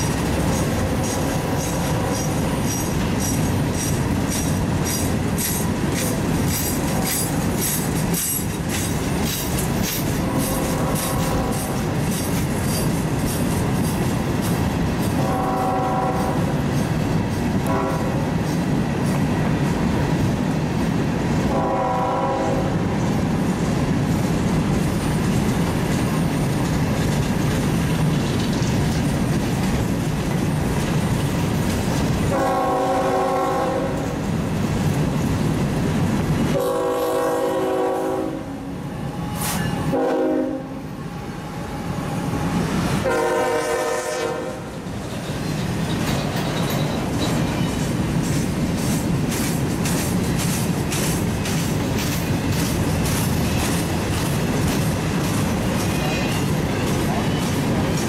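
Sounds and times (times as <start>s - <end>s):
train rumble and wheel clatter: 0.0s - 58.0s
locomotive air horn blasts: 10.2s - 11.8s, 15.2s - 16.5s, 17.6s - 18.2s, 21.5s - 22.9s, 32.3s - 34.2s, 36.5s - 42.4s, 43.0s - 44.8s.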